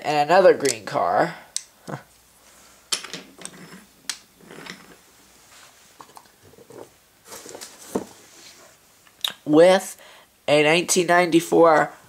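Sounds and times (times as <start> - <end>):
rustling: 2.1 - 8.9.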